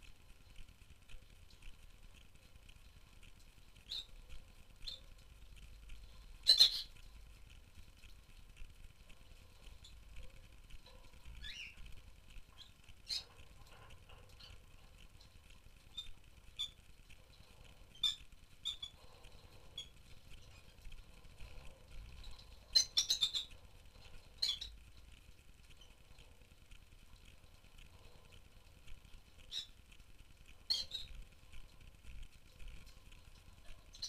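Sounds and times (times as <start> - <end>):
lovebirds chirping and squawking: 3.9 - 4.2, 6.4 - 7.0, 11.3 - 11.8, 12.5 - 13.4, 22.0 - 24.8, 30.7 - 31.2.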